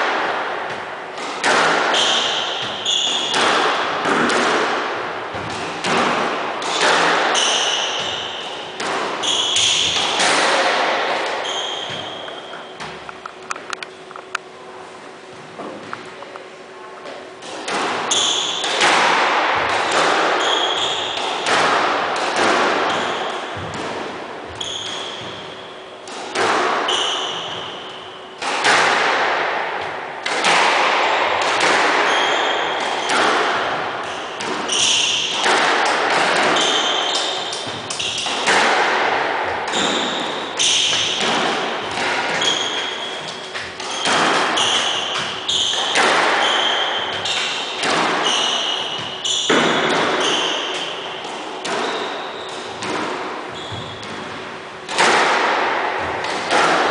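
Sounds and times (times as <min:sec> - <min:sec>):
squash ball hitting rackets and walls: 0:00.0 - 0:14.4, 0:15.2 - 0:16.3, 0:17.0 - 0:56.9
shoes squeaking on wooden floor: 0:11.4 - 0:14.3, 0:53.5 - 0:54.2.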